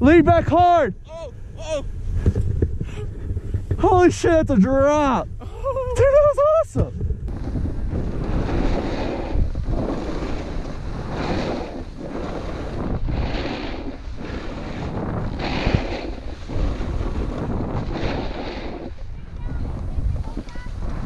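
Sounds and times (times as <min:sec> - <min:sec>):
wind noise on microphone: 0:00.0 - 0:21.0
snowboard scraping over snow: 0:06.0 - 0:21.0.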